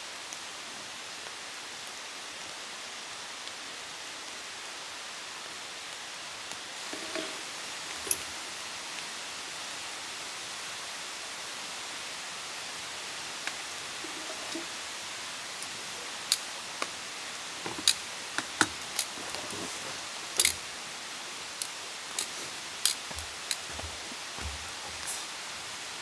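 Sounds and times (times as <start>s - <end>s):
steady fire hiss: 0.0s - 26.0s
campfire crackling and popping: 13.2s - 25.2s.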